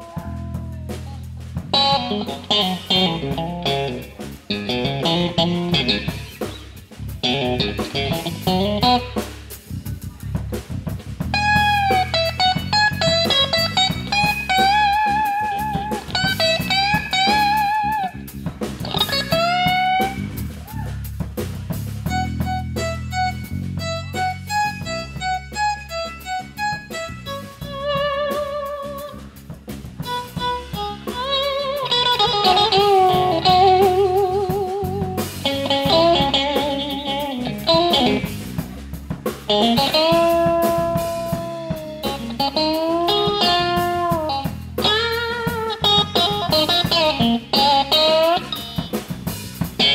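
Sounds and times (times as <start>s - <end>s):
drum kit: 0.0s - 49.9s
electric bass: 0.0s - 49.9s
electric guitar solo: 1.7s - 9.4s, 11.3s - 21.1s, 22.0s - 29.3s, 30.0s - 38.9s, 39.5s - 49.9s.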